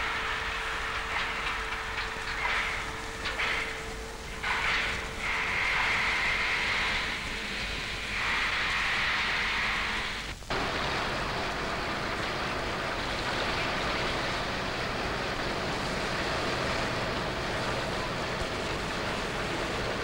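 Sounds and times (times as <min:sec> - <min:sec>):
ferry rushing noise: 0:09.8 - 0:20.0.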